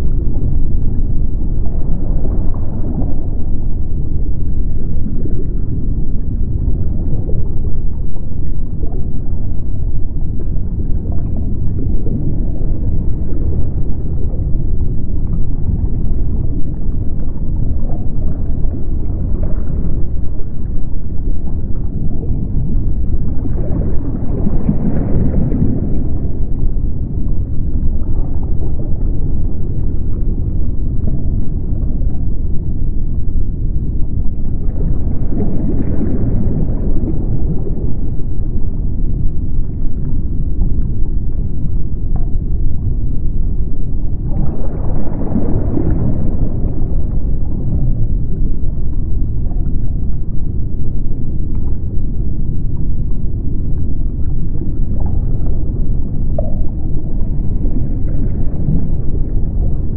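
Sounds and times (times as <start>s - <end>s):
low underwater rumble: 0.0s - 59.9s.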